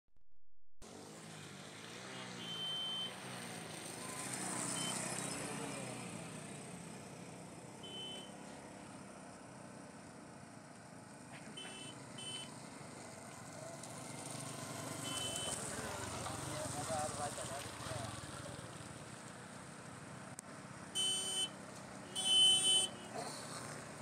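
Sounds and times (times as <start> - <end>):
motorcycle engines running: 0.8 - 24.0
short high-pitched beeps: 2.4 - 3.1, 4.8 - 5.0, 21.0 - 21.5.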